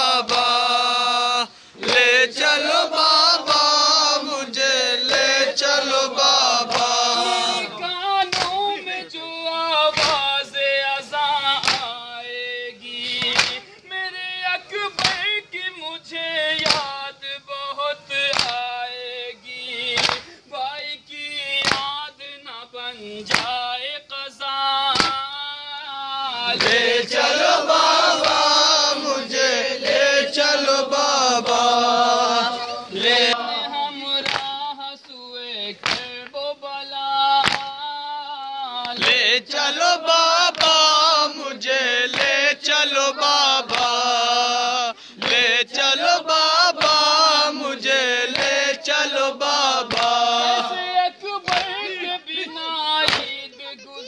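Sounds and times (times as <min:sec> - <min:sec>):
men chanting a lament: 0:00.0 - 0:54.0
chest-beating slaps: 0:00.2 - 0:00.6, 0:06.6 - 0:07.0, 0:08.3 - 0:08.6, 0:09.9 - 0:10.3, 0:11.6 - 0:11.9, 0:13.1 - 0:13.6, 0:15.0 - 0:15.2, 0:18.3 - 0:18.6, 0:20.0 - 0:20.3, 0:23.3 - 0:23.6, 0:25.0 - 0:25.2, 0:34.2 - 0:34.6, 0:35.8 - 0:36.3, 0:37.4 - 0:37.8, 0:46.8 - 0:47.0, 0:49.9 - 0:50.8, 0:51.5 - 0:51.8, 0:53.0 - 0:53.4.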